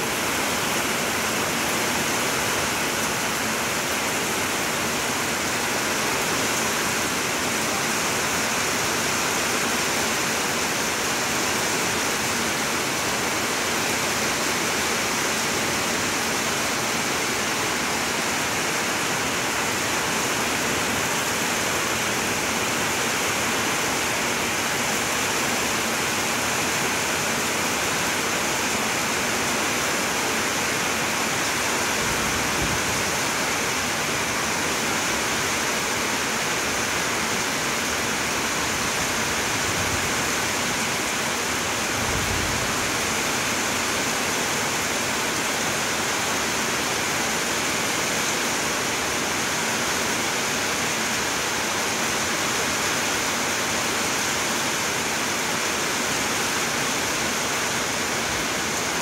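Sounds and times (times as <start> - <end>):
heavy rain on leaves: 0.0 - 59.0.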